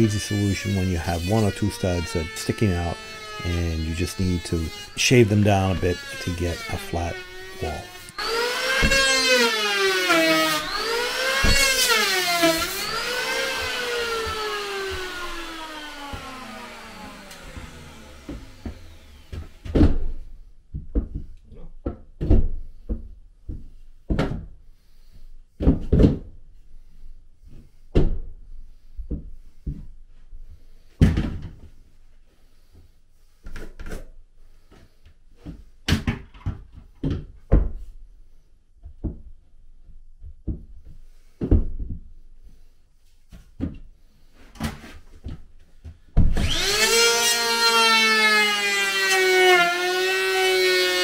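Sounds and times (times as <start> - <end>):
electric power planer running: 0.3 - 19.6, 46.4 - 51.0.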